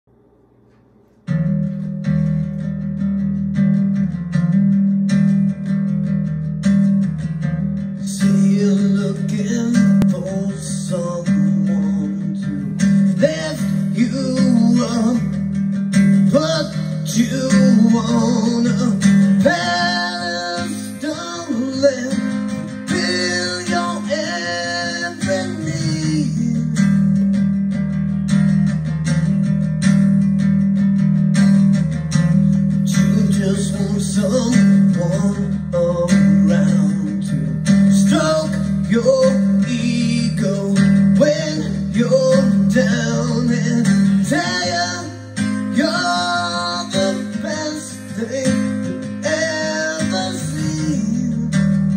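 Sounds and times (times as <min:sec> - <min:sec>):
strummed acoustic guitar: 0:00.7 - 0:51.9
person singing: 0:08.0 - 0:15.5, 0:16.1 - 0:27.3, 0:32.3 - 0:51.9.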